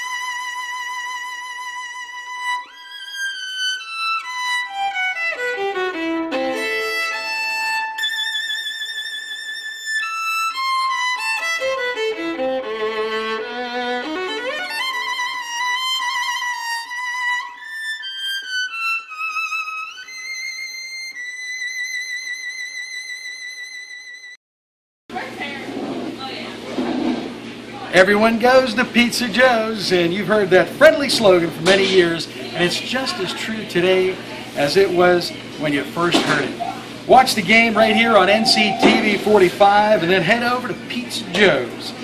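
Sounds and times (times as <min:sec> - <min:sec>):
solo violin melody: 0:00.0 - 0:24.4.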